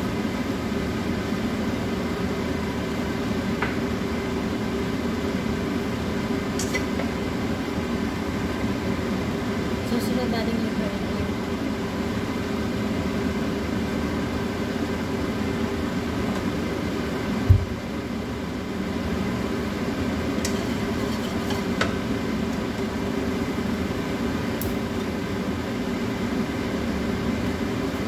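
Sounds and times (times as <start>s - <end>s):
fan or motor humming: 0.0s - 28.0s
dull thump: 17.5s - 17.8s.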